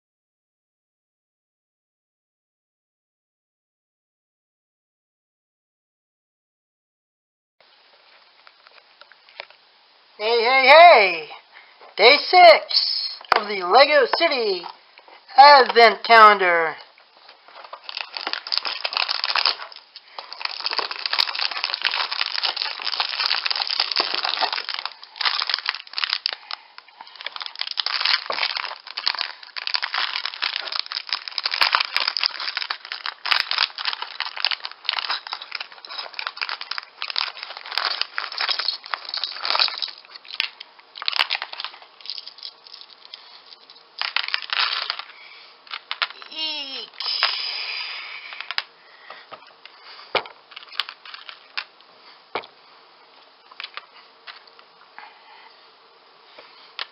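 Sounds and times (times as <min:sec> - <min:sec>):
plastic bag crinkling and tearing: 0:17.2 - 0:48.7, 0:50.5 - 0:51.7.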